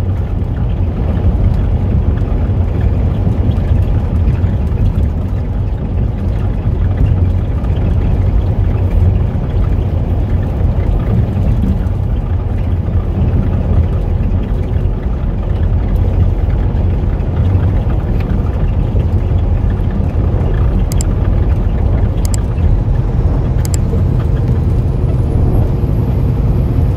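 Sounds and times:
road noise: 0.0 - 26.9
truck engine rumble: 0.0 - 26.9
faint clicks: 20.5 - 22.7, 23.5 - 24.3.

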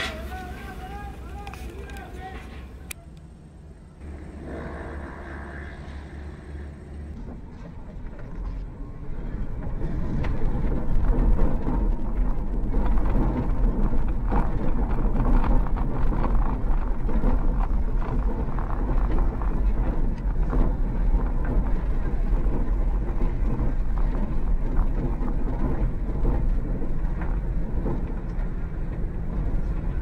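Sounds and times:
tyres ticking on gravel: 0.0 - 3.0, 9.6 - 30.0
engine and road rumble: 0.0 - 30.0.

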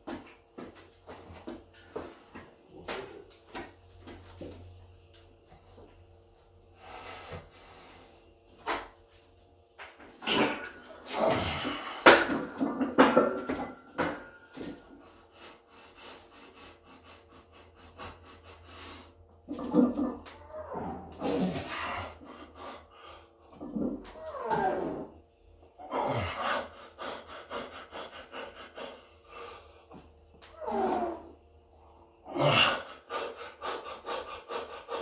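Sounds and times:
heavy forceful breathing: 10.9 - 19.7, 21.1 - 23.5, 25.8 - 35.0.

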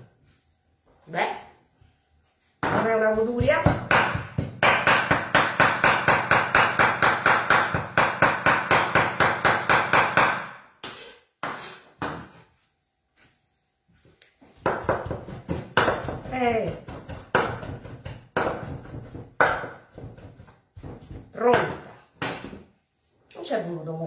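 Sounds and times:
knife chopping on wooden board: 2.6 - 12.4, 14.6 - 22.6.

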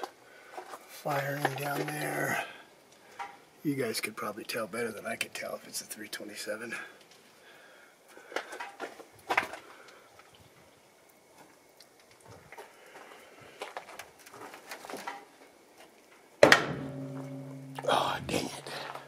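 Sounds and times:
car hood slamming shut: 16.4 - 17.2.

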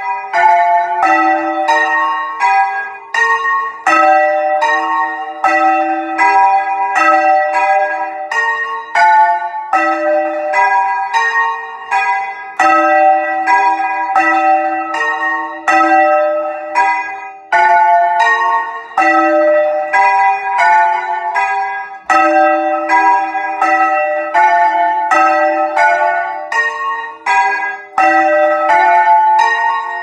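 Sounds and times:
church bells ringing: 0.0 - 30.0.

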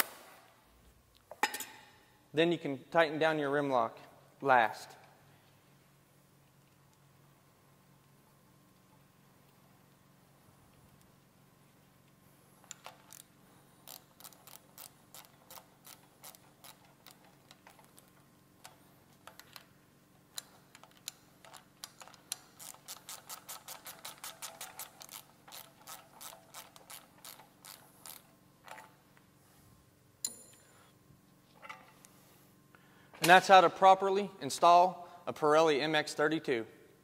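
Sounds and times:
ratchet wrench clicking: 12.7 - 17.8, 20.3 - 28.9.

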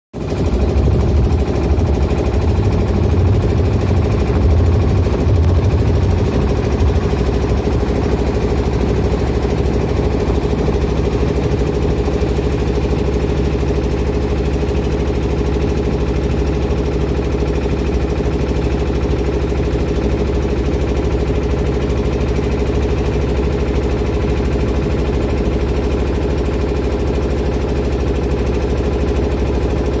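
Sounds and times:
boat engine running: 0.2 - 30.0.

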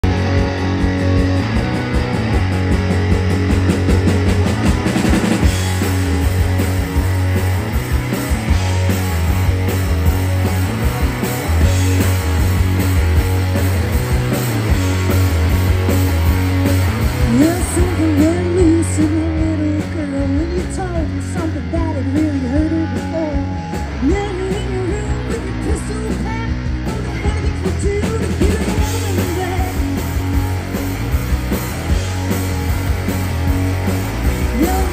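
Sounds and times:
rock band playing: 0.0 - 34.9
woman singing: 17.3 - 30.0, 34.5 - 34.9.

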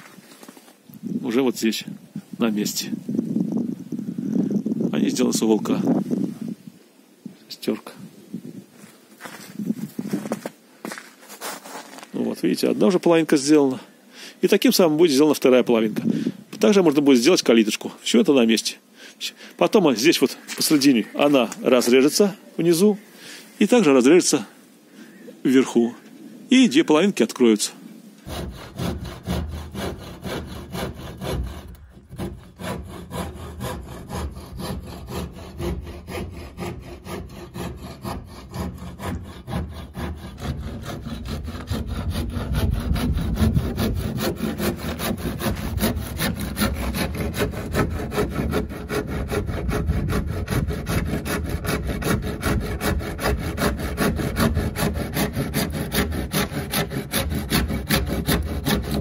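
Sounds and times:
saw cutting wood: 28.2 - 59.0.

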